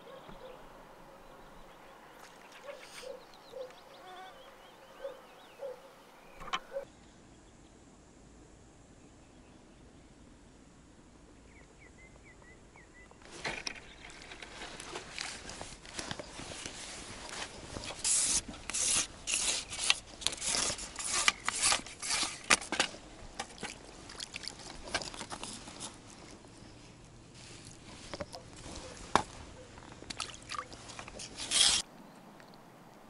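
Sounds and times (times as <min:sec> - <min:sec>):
clothing rustling on microphone: 0:13.2 - 0:18.6, 0:23.8 - 0:31.8
fish splashing: 0:23.5 - 0:25.4, 0:30.1 - 0:31.0.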